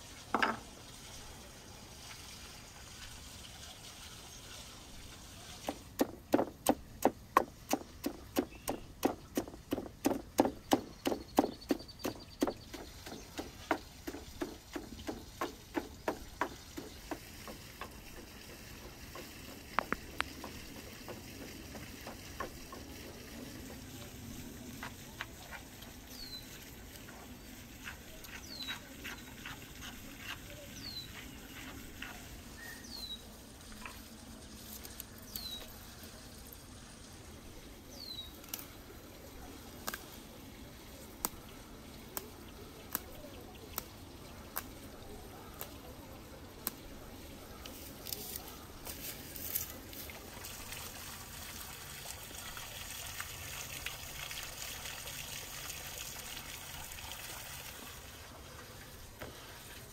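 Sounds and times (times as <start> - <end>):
pestle pounding in wooden mortar: 5.7 - 23.8
bird chirping: 8.4 - 9.4, 10.4 - 13.8, 28.3 - 29.3, 32.1 - 33.2.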